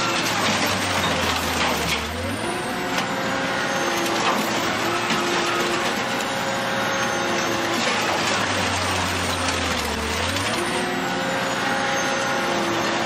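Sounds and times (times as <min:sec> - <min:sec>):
sheet metal crunching and ripping: 0:00.0 - 0:02.4, 0:03.9 - 0:06.4, 0:07.4 - 0:11.0
shredder machine drone: 0:00.0 - 0:13.0.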